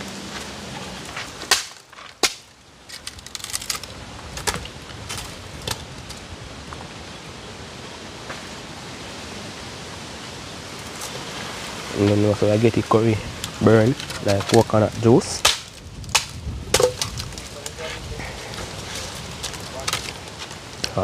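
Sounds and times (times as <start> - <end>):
firewood cracking: 0.0 - 7.0, 10.6 - 21.0
fire hissing: 10.2 - 21.0
sticks knocking: 15.4 - 18.7.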